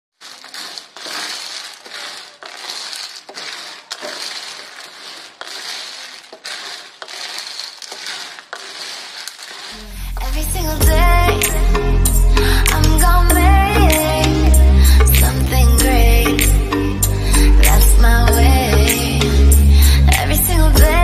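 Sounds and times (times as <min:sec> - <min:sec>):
food sizzling: 0:00.1 - 0:10.4
spatula scraping wok: 0:00.2 - 0:10.9
music: 0:09.8 - 0:21.0.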